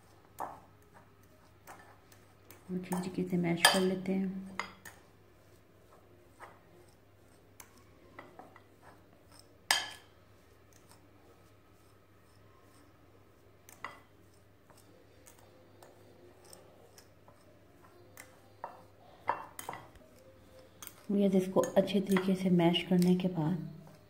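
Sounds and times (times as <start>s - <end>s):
fork scraping and clinking on china: 4.6s - 13.0s, 13.7s - 22.3s.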